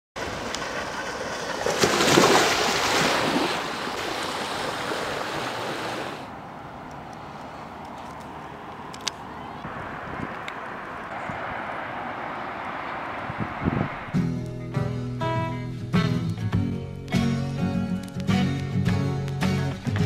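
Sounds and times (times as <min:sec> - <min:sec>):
small waves lapping on rocks: 0:00.2 - 0:06.3.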